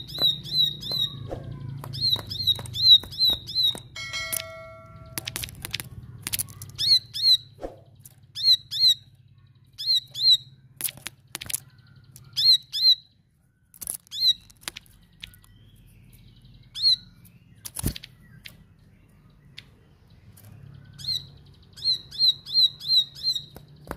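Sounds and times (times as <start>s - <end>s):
bird calling high notes: 0.0s - 5.5s
sharp clicks: 1.8s - 6.8s.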